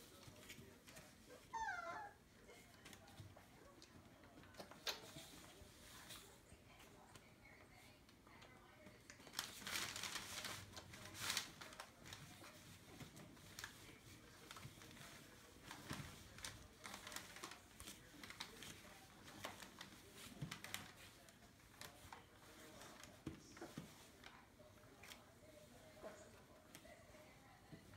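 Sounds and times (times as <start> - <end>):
newspaper rustling: 9.1 - 25.6.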